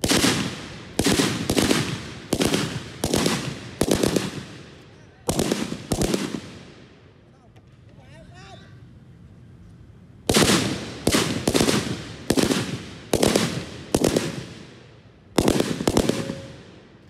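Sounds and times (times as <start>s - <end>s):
rifle shots echoing: 0.0s - 7.0s, 10.3s - 17.0s.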